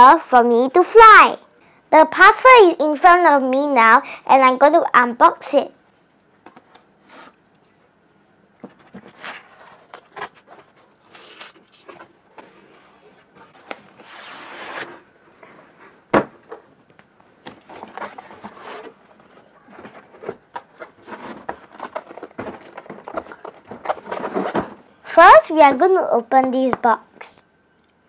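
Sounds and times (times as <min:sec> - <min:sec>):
cardboard rustling and scraping: 0:07.0 - 0:07.4, 0:08.6 - 0:16.7, 0:17.4 - 0:25.8
tearing scrape: 0:13.4 - 0:15.0.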